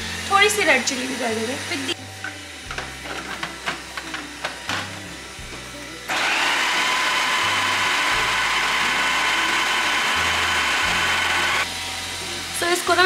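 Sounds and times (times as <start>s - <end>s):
food processor motor whining: 6.1s - 12.2s.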